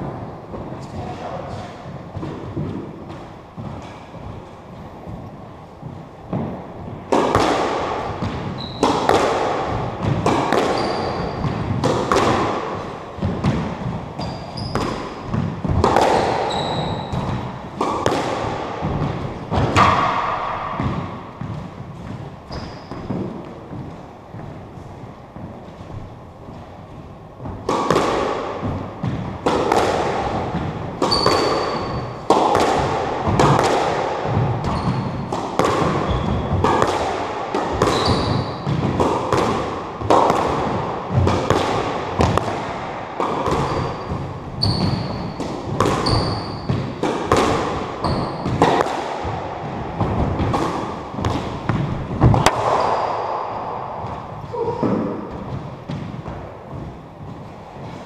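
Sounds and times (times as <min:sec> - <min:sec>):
squash ball hitting rackets and walls: 0:00.0 - 0:58.0
shoes squeaking on wooden floor: 0:08.5 - 0:09.0, 0:10.7 - 0:11.5, 0:14.2 - 0:15.0, 0:16.1 - 0:17.4, 0:21.3 - 0:27.4, 0:31.0 - 0:32.2, 0:34.6 - 0:35.3, 0:36.0 - 0:36.6, 0:37.8 - 0:38.7, 0:43.5 - 0:45.4, 0:46.0 - 0:46.8, 0:48.0 - 0:48.6.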